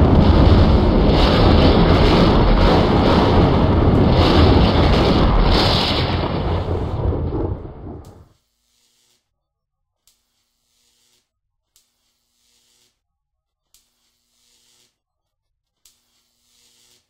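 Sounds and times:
electrical rumbling and crackling: 0.0 - 8.3.

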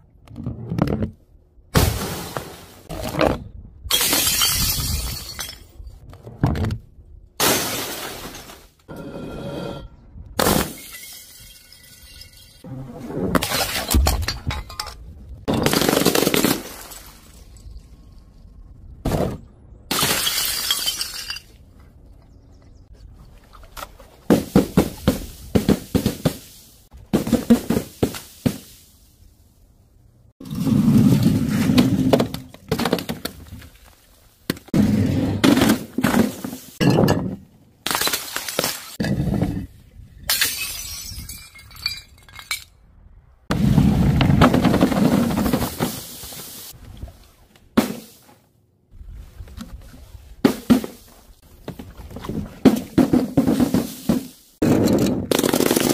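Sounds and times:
glass bottles and jars shattering: 3.9 - 6.0, 10.4 - 12.7, 13.4 - 17.7, 19.9 - 21.6, 35.7 - 39.3, 40.3 - 42.8.

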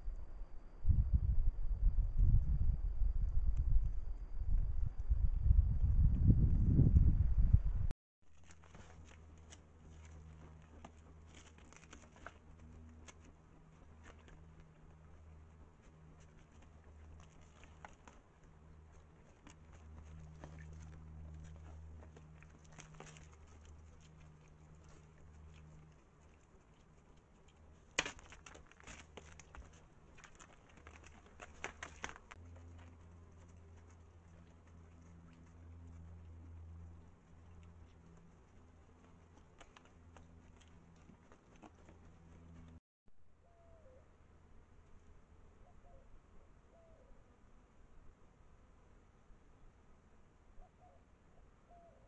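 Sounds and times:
low steady hum: 0.0 - 52.0
sheep drinking clicks and taps: 8.3 - 42.8.

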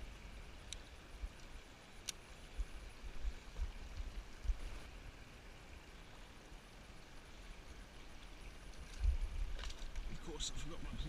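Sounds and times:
wind and handling on microphone: 0.0 - 5.1, 7.7 - 11.0
faint outdoor hiss: 0.0 - 11.0.

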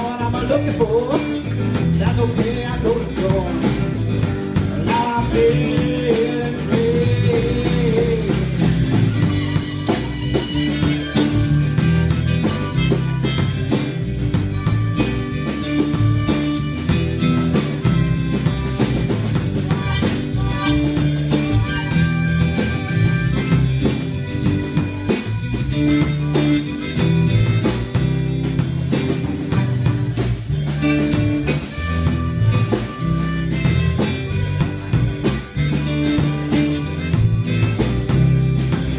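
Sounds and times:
drum kit steady beat: 0.0 - 38.9
electric bass: 0.0 - 38.9
strummed acoustic guitars: 0.0 - 38.9
harmonica solo: 3.6 - 38.9.

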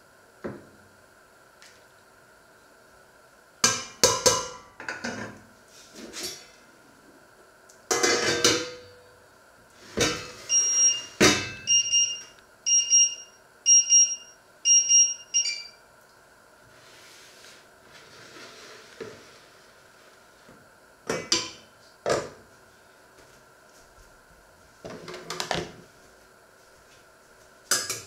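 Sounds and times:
high electronic beeps: 10.5 - 15.8.

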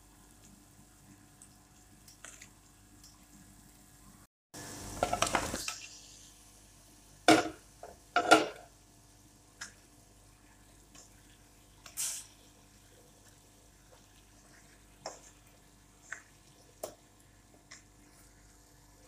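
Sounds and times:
scraping and sizzling in pan: 4.6 - 8.8, 9.6 - 19.0.

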